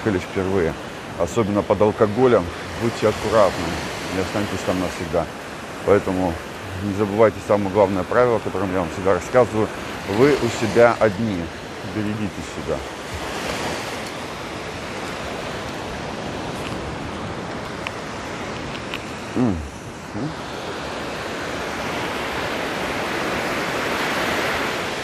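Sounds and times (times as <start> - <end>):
waves washing up a beach: 0.0 - 25.0
short voice sound: 19.3 - 20.4.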